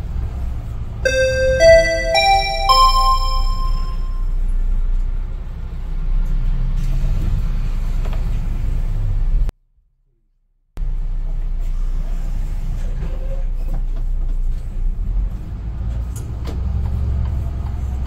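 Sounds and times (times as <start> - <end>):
electronic next-stop chime: 1.1 - 4.2.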